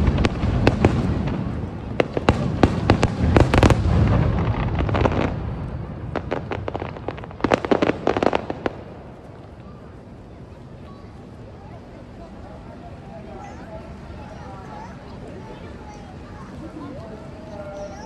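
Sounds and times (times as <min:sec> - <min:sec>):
low rumble of booms: 0:00.0 - 0:09.6
fireworks cracking and popping: 0:00.0 - 0:10.0.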